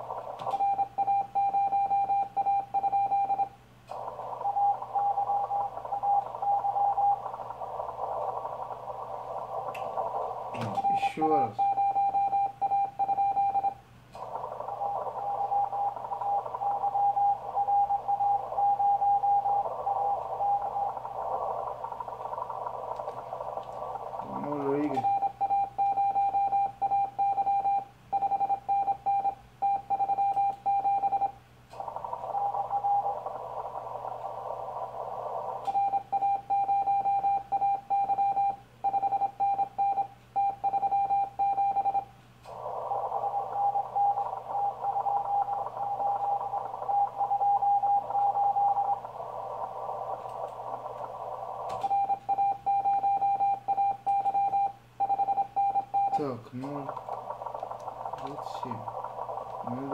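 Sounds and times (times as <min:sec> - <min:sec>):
radio receiver hiss: 0:00.0 - 0:01.9, 0:03.0 - 0:27.2, 0:30.2 - 0:37.9, 0:41.3 - 0:59.9
morse code tone: 0:10.6 - 0:13.8, 0:24.3 - 0:31.4, 0:51.8 - 0:59.9.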